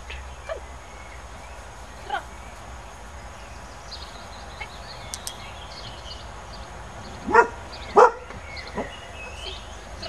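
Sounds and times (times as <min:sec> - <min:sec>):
light clicks: 0:05.0 - 0:05.5.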